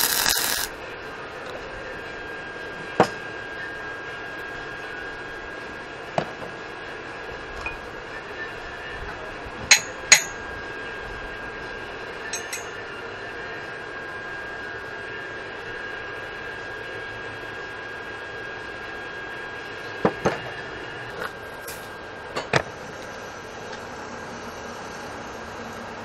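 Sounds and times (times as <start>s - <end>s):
metallic clanks on steel tubing: 12.3s - 12.7s.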